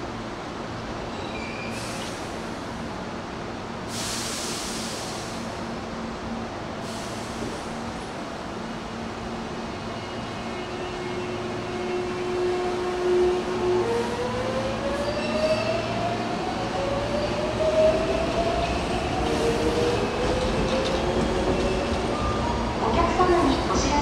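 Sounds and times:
train wheels rumbling: 0:09.3 - 0:24.0.

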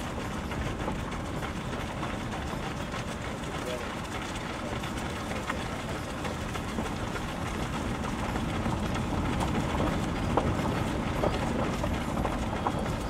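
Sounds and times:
gravel ticks: 0:00.0 - 0:13.0
running footsteps: 0:00.0 - 0:13.0
vehicle rumbling on dirt road: 0:00.0 - 0:13.0.

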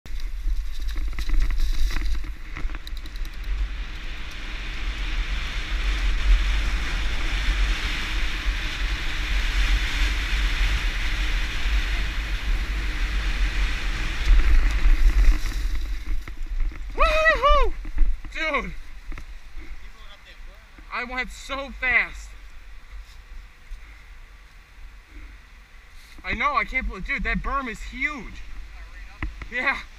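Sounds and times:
knobby tyres rolling: 0:00.1 - 0:19.8.

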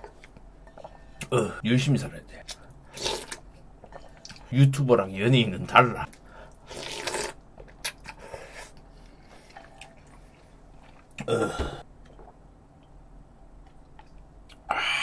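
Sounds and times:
slurping and chewing: 0:06.5 - 0:11.3
loud burp: 0:11.2 - 0:11.8.

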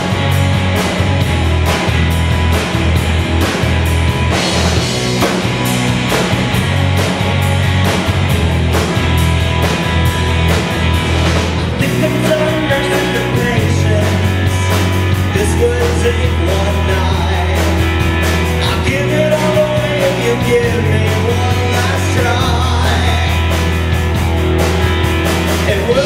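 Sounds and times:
drum kit beat: 0:00.0 - 0:26.0
electric bass: 0:00.0 - 0:26.0
electric guitars: 0:00.0 - 0:26.0
male singer: 0:11.7 - 0:18.0, 0:18.6 - 0:23.7, 0:25.6 - 0:26.0.

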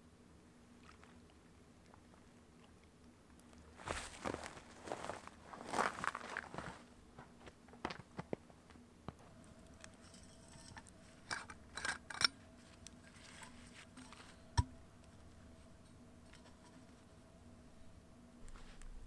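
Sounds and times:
objects clicking and knocking: 0:09.9 - 0:12.4.

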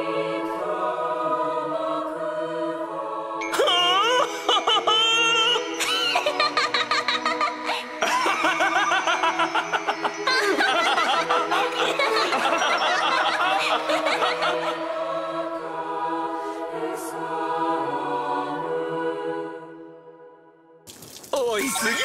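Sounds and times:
soft background music: 0:00.0 - 0:20.3
voices laughing together: 0:03.8 - 0:15.2.

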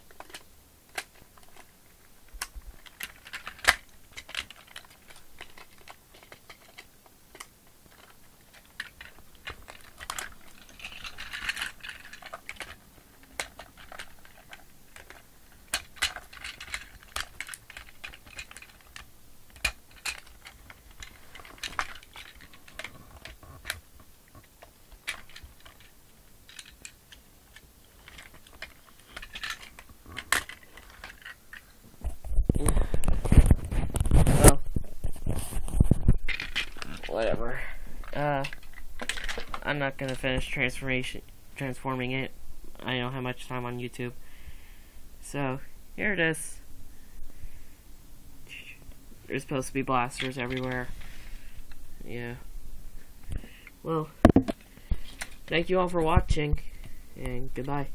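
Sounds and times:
plastic toy parts clicking: 0:00.0 - 0:01.7, 0:02.3 - 0:31.6, 0:36.2 - 0:37.1, 0:38.0 - 0:40.5, 0:49.4 - 0:50.9
plastic parts scraping: 0:00.0 - 0:42.2, 0:48.5 - 0:52.4, 0:53.2 - 0:57.9.

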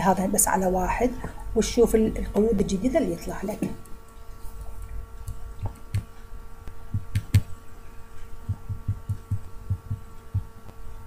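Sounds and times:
faint steady hum: 0:00.0 - 0:11.0
computer mouse clicking: 0:07.0 - 0:07.5.

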